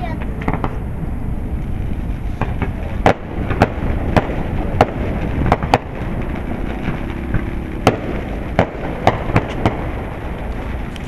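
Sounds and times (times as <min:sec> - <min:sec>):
fireworks bursting: 0:00.0 - 0:11.0
low rumble: 0:00.0 - 0:11.0.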